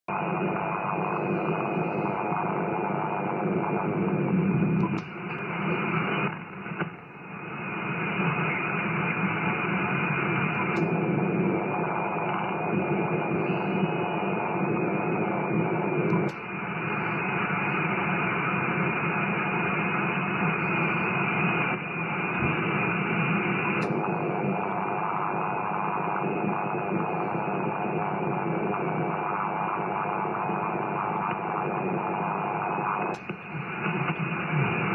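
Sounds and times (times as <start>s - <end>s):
radio static hiss: 0.0s - 34.9s
antenna switch clicks: 33.0s - 33.5s.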